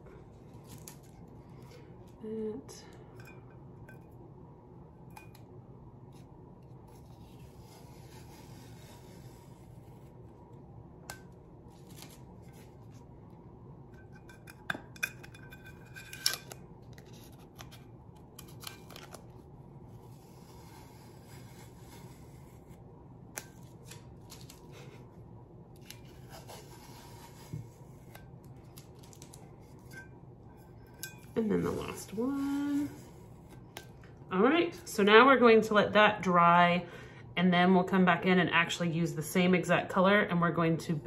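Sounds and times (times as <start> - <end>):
tape peeling crackles and clicks: 11.7 - 12.6, 16.1 - 19.4, 23.3 - 24.8, 28.4 - 29.5.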